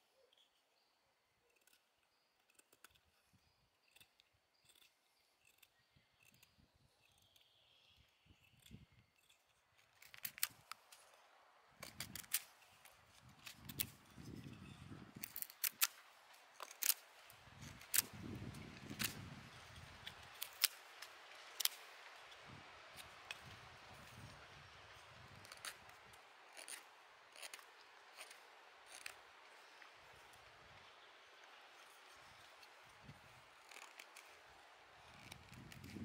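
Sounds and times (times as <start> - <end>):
knife scraping wood: 1.4 - 11.2, 11.8 - 36.0
sharp clicks of blade on wood: 3.9 - 7.5, 14.6 - 17.0.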